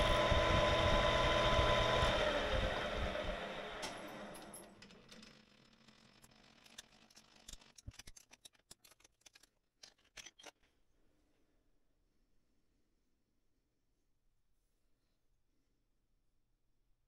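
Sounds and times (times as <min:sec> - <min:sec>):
lathe hum: 0:00.0 - 0:04.5.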